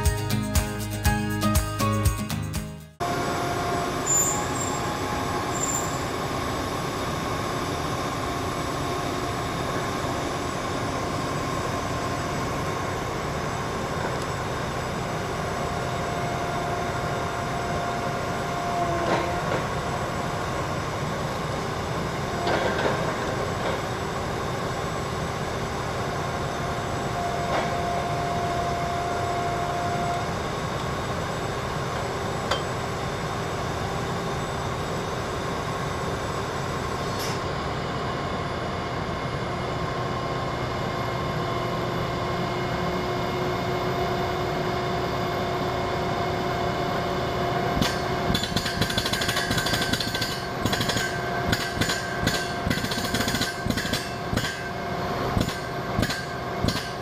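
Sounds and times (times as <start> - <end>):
drilling rig running: 0.0 - 37.5, 46.8 - 57.0
high mechanical whine: 3.0 - 57.0.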